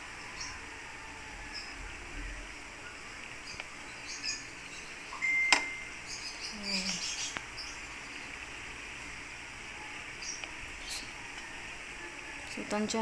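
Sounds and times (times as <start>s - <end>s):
faint high chirps: 2.8s - 8.4s.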